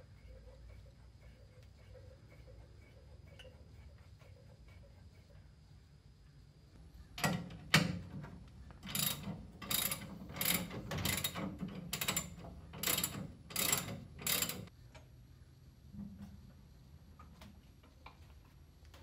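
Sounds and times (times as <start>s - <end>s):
ratchet wrench clicking: 8.8s - 14.7s.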